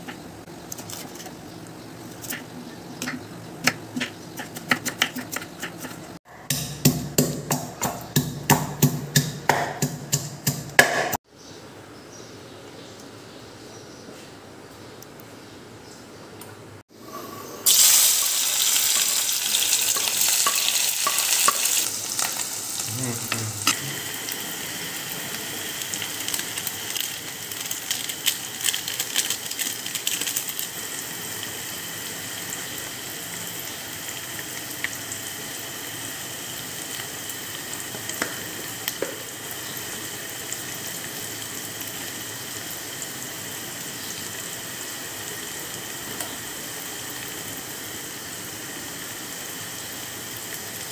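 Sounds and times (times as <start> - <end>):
onions sizzling in hot oil: 17.6 - 50.9
oil popping and crackling: 17.7 - 24.4, 25.2 - 31.6.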